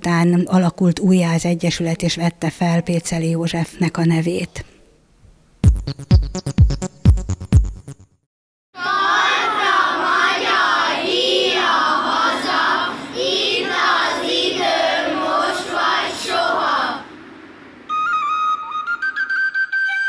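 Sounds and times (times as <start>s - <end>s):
children singing together: 8.8s - 17.2s
flute melody: 17.9s - 20.0s.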